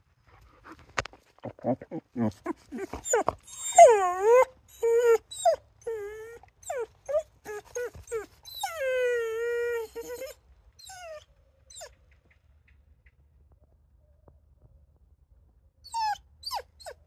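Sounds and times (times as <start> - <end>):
dog whining and yelping: 2.2 - 12.0, 15.8 - 17.0.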